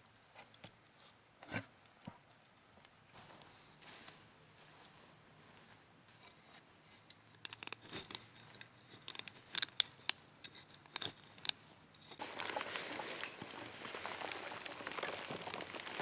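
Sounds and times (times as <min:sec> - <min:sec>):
blade cracking and scraping wood: 0:07.4 - 0:16.0
rain hissing: 0:12.2 - 0:16.0.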